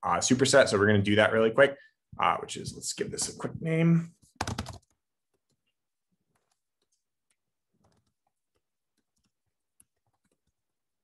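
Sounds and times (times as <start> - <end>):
computer keyboard typing: 4.4 - 5.6, 7.8 - 10.6.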